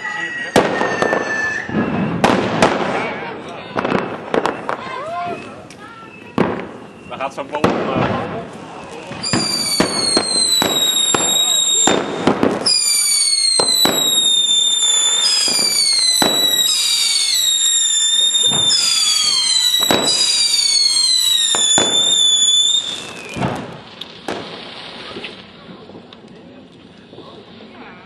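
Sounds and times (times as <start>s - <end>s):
firework fountain whistling: 0.0s - 28.0s
firework pops: 7.5s - 27.4s.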